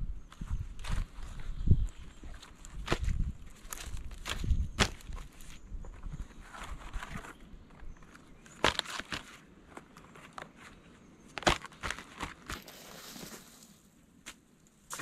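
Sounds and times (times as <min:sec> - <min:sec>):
sharp knocks of bark on logs: 0:11.4 - 0:12.6.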